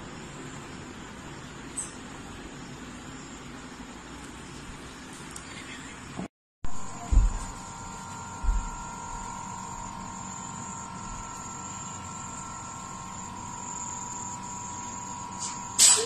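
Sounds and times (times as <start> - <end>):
electrical hum: 0.0 - 16.0
high-pitched whine: 6.7 - 16.0
short low thump: 7.1 - 7.6, 8.4 - 8.8.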